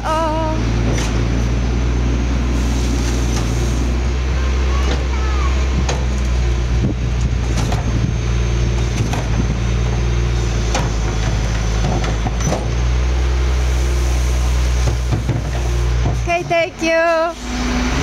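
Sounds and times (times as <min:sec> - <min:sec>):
garbage truck engine idling: 0:00.0 - 0:18.0
bins knocking and clattering: 0:10.6 - 0:12.8.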